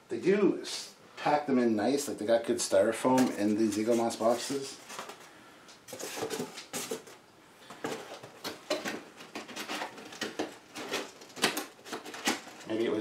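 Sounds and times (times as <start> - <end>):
styrofoam squeaking and rubbing: 3.3 - 4.8.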